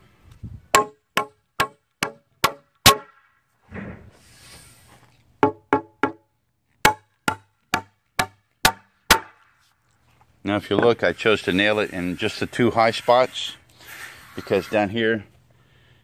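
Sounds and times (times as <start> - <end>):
hammer driving nails into wood: 0.8 - 3.2, 6.8 - 9.4.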